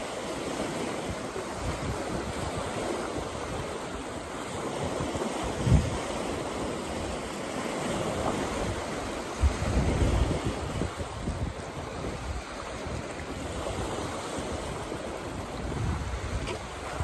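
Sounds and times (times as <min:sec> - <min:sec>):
waves breaking on rocky shore: 0:00.0 - 0:17.0
wind on microphone: 0:00.0 - 0:17.0.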